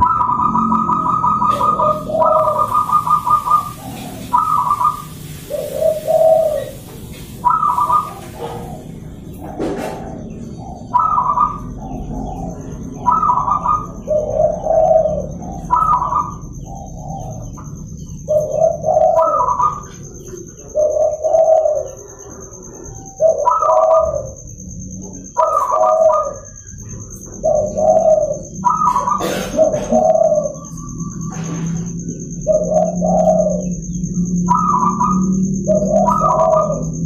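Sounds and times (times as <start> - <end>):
doves cooing: 0.0 - 37.0.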